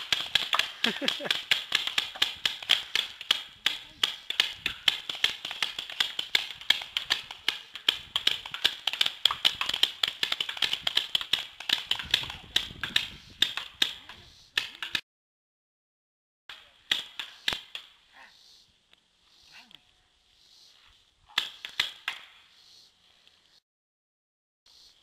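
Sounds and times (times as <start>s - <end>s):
paintball markers firing: 0.0s - 14.0s, 21.3s - 22.4s.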